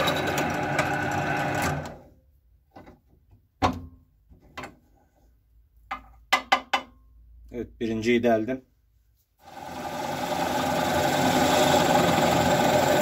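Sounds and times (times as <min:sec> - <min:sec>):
drill press boring wood: 0:00.0 - 0:02.0, 0:09.4 - 0:13.0.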